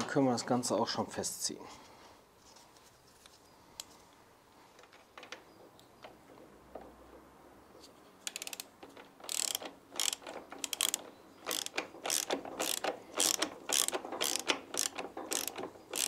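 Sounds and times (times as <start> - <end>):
ratchet wrench clicking: 8.2 - 16.0.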